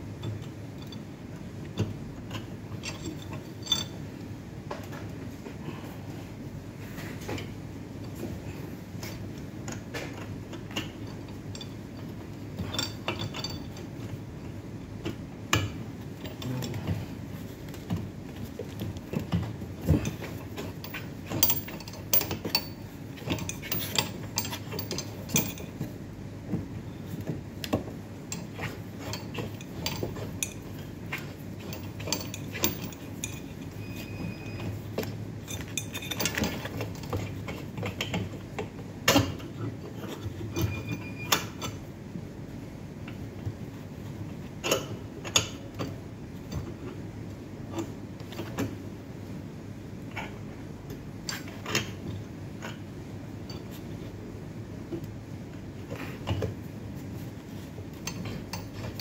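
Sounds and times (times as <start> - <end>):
steady low hum: 0.0 - 59.0
clicks and rattles of parts: 0.1 - 5.2, 7.0 - 41.9, 54.8 - 59.0.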